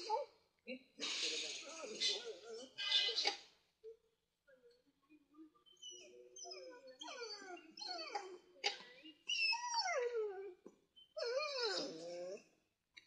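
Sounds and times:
dog whining and howling: 0:05.8 - 0:08.3, 0:09.3 - 0:10.5, 0:11.2 - 0:12.4.

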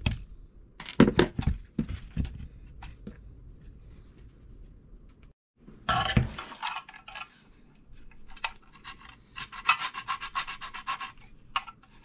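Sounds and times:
file rasping on wire winding: 0:08.7 - 0:11.3.

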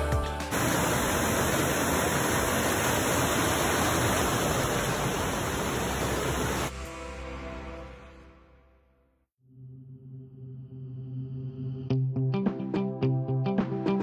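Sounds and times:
background music: 0:00.0 - 0:00.7, 0:06.7 - 0:09.0, 0:10.4 - 0:14.0
stream rushing over rocks: 0:00.5 - 0:06.7.

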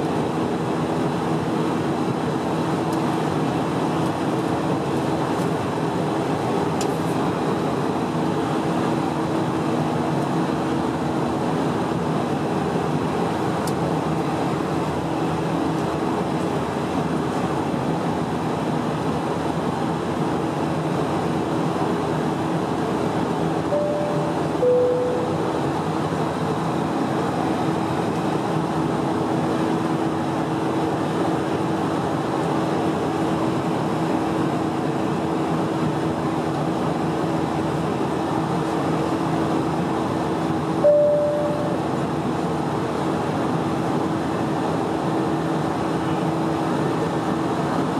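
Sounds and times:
constant low hum: 0:00.0 - 0:47.9
jet engines droning in cabin: 0:00.0 - 0:47.9
cabin chime tone: 0:23.7 - 0:25.4, 0:40.8 - 0:41.8.

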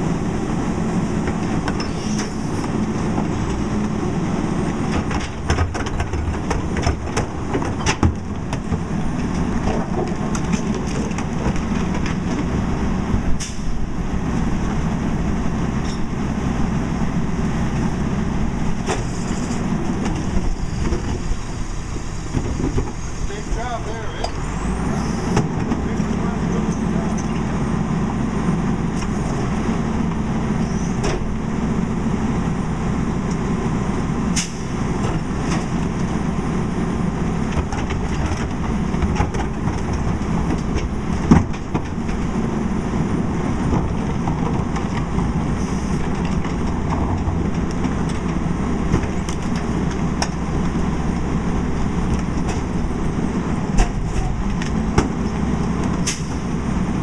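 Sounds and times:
garbage truck engine and hydraulics: 0:00.0 - 0:57.0
carts and metal knocking: 0:04.7 - 0:12.5.

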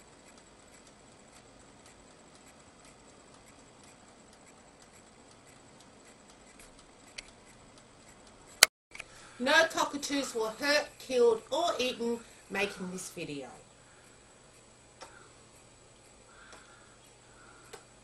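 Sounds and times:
rotisserie spit ticking: 0:00.0 - 0:09.1, 0:13.7 - 0:18.0
click: 0:17.6 - 0:17.9.

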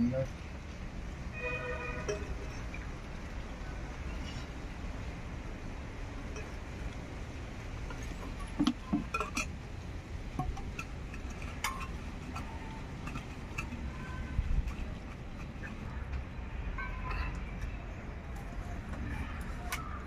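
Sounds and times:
steel kitchenware clinking: 0:08.0 - 0:09.6, 0:10.4 - 0:16.2.

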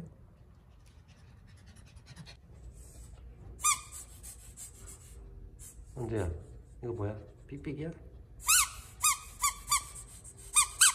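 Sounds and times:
rubber squeaky toy squeak: 0:03.6 - 0:04.1, 0:08.4 - 0:10.9.

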